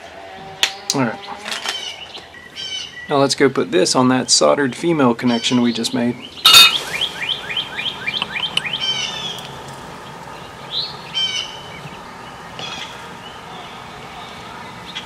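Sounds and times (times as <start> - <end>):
bird chirping: 4.2 - 15.0.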